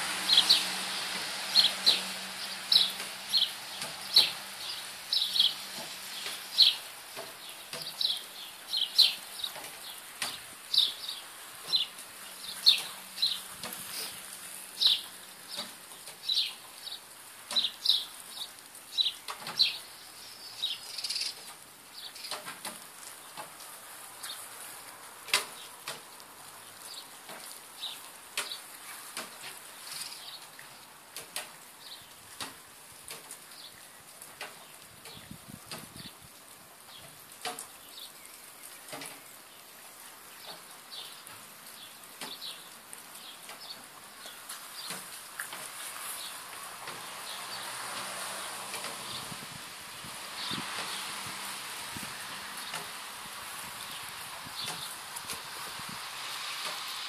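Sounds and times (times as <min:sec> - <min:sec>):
small birds chirping: 0:00.3 - 0:23.4, 0:25.4 - 0:30.9, 0:31.8 - 0:32.2, 0:33.4 - 0:36.2, 0:36.9 - 0:49.4, 0:50.3 - 0:51.4, 0:52.4 - 0:55.5.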